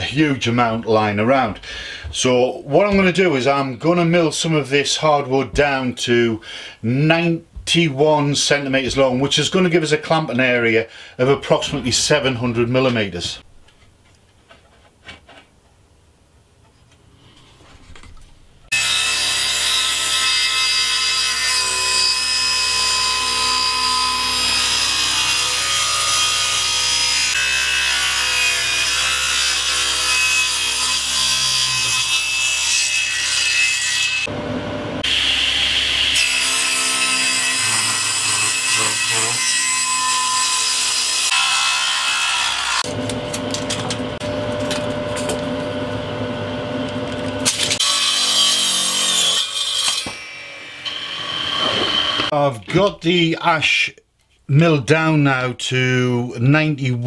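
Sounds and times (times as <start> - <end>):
table saw cutting wood: 18.7 - 52.4.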